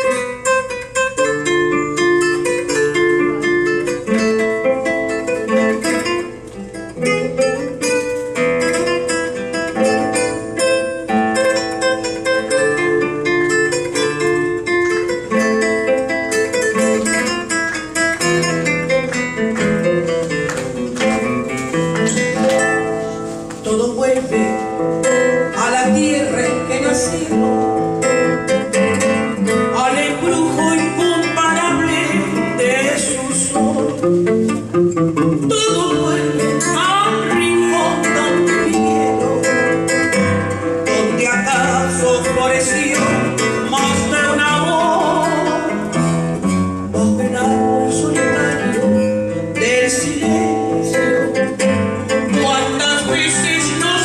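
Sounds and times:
nylon-string guitar: 0.0s - 54.0s
woman singing: 23.6s - 28.4s, 29.5s - 34.6s, 35.4s - 54.0s.

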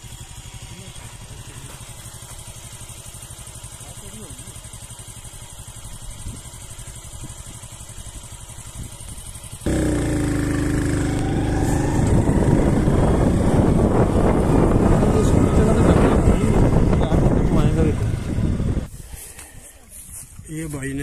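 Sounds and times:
motorcycle engine running: 0.0s - 18.9s
wind on microphone: 9.7s - 19.0s.

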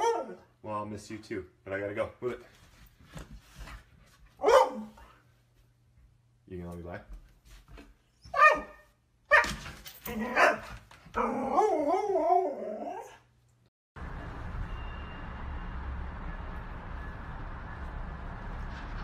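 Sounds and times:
dog yelping and barking: 0.0s - 0.5s, 4.4s - 5.0s, 8.2s - 13.2s
dog howling: 11.2s - 13.2s.

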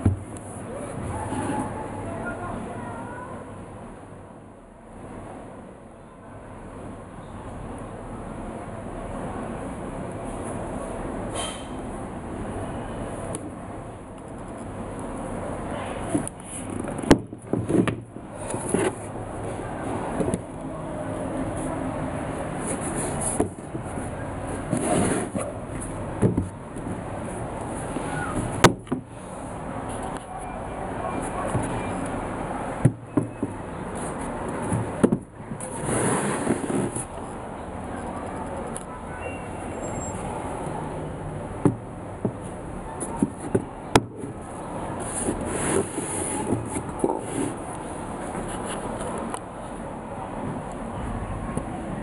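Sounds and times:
brushing rubbing sound: 22.5s - 25.5s, 35.6s - 37.1s, 45.0s - 49.0s.

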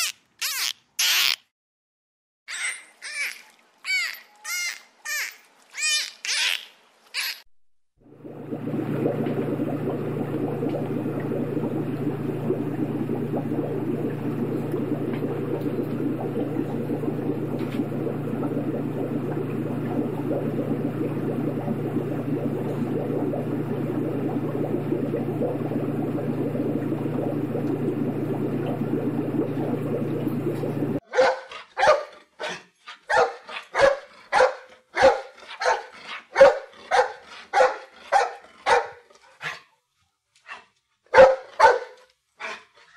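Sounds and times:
low rumbling noise: 8.0s - 31.0s
small dog barking: 31.1s - 39.0s, 41.1s - 42.0s.

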